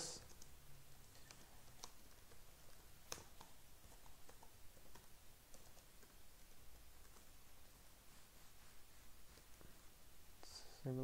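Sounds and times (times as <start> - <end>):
typing on computer keyboard: 0.2 - 6.2, 6.9 - 7.3.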